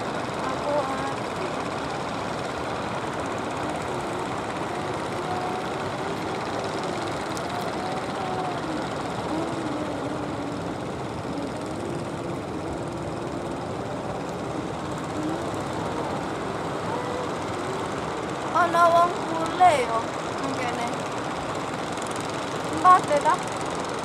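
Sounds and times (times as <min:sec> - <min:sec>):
boat engines droning: 0:00.0 - 0:24.0
constant rushing noise: 0:00.0 - 0:24.0.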